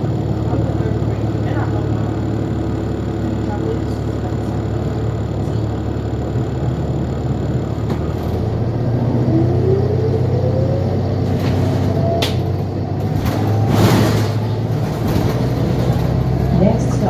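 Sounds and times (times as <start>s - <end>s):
bus engine rumble and hum: 0.0s - 17.0s
rising drive whine: 6.6s - 13.0s.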